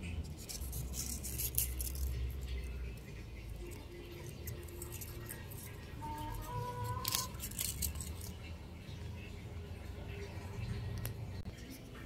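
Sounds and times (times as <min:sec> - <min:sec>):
flower rustling and crackling: 0:00.2 - 0:08.4.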